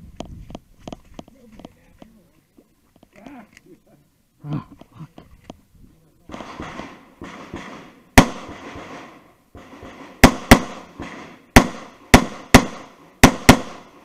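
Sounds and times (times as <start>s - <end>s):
pistol shots: 6.3s - 14.0s.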